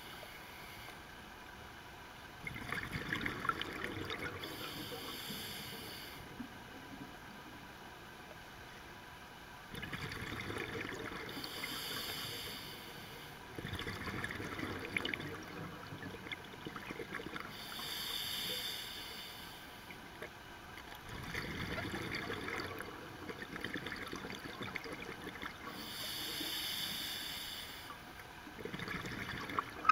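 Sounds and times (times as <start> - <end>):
scuba regulator breathing hiss: 4.4 - 6.3, 11.3 - 13.4, 17.5 - 19.9, 25.7 - 28.0
exhaled bubbles rushing: 21.0 - 25.6, 28.6 - 29.9.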